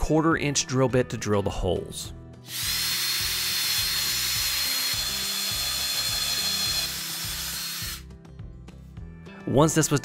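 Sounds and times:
cordless drill whining: 0:02.5 - 0:08.0.

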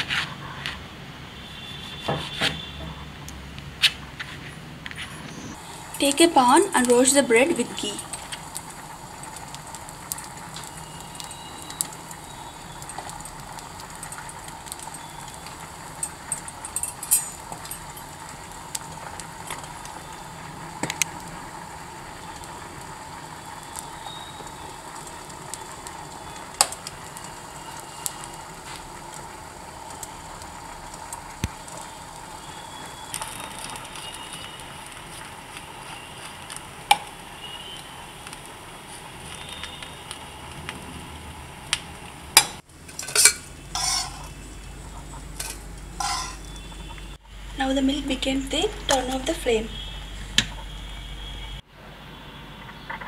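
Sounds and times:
bread sizzling in a pan: 0:05.5 - 0:51.5
sharp pops and clicks: 0:20.8 - 0:21.3, 0:23.7 - 0:27.4.

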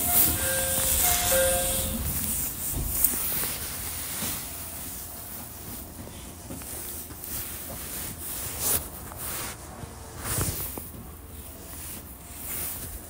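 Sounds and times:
train cabin rumble: 0:00.0 - 0:07.0.

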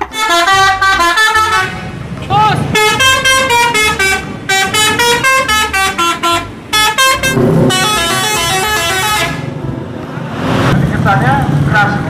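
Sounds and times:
multi-tone bus horn melody: 0:00.0 - 0:09.6
engine and traffic rumble: 0:00.0 - 0:12.0.

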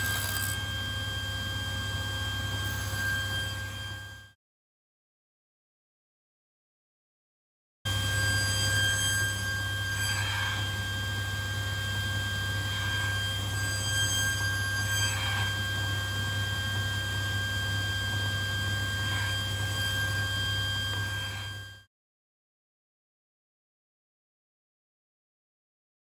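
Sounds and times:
table saw running: 0:00.0 - 0:04.3, 0:07.9 - 0:21.9.

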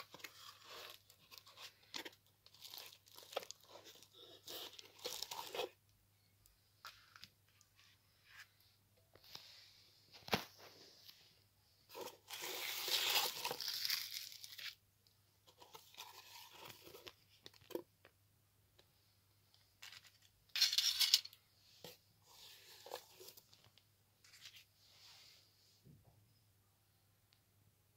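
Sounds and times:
bubble wrap and bags crinkling: 0:00.0 - 0:05.8, 0:11.9 - 0:14.8.

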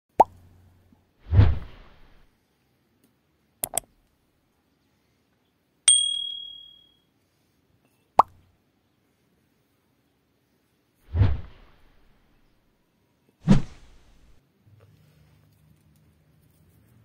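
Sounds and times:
bright bell-like ding: 0:05.9 - 0:07.0.

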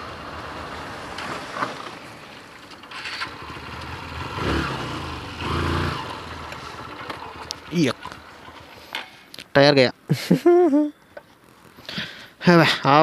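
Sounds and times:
road and wind noise: 0:00.0 - 0:13.0
motorcycle engine running: 0:01.9 - 0:08.9.

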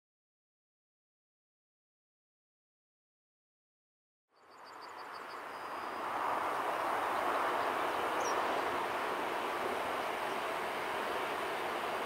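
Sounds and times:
bird chirp: 0:04.4 - 0:06.1, 0:07.5 - 0:08.8
electric train rumbling on rails: 0:04.7 - 0:12.0.

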